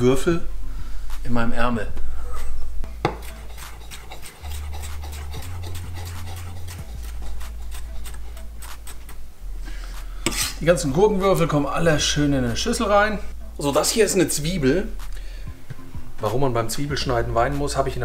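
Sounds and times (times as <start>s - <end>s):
knife tapping cutting board: 3.0s - 3.3s.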